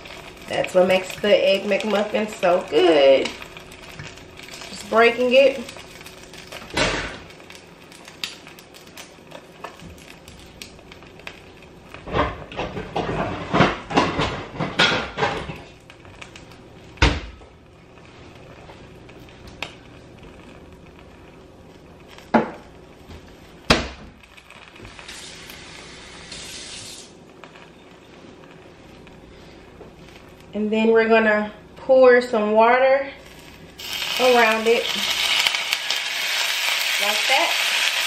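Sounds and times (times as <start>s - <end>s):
egg sizzling in a skillet: 0.0s - 30.7s, 33.2s - 38.0s
soft hiss: 15.9s - 30.8s.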